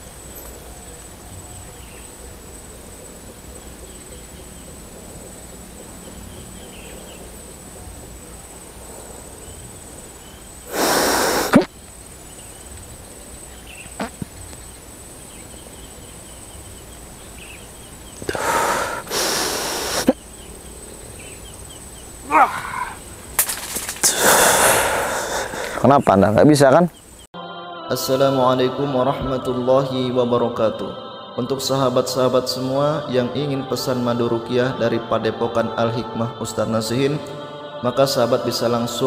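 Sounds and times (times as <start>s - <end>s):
loud hissing air bursts: 10.6s - 11.7s, 18.3s - 20.2s.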